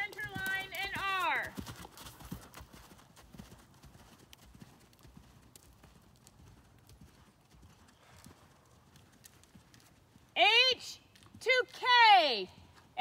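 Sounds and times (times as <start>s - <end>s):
muffled horse hoofbeats on sand: 0.0s - 8.6s.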